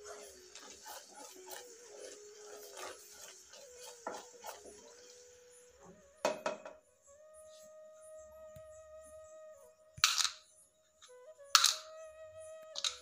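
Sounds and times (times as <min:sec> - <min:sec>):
syrup bubbling: 0:00.0 - 0:06.0
wooden spatula scraping a pan: 0:00.0 - 0:06.8.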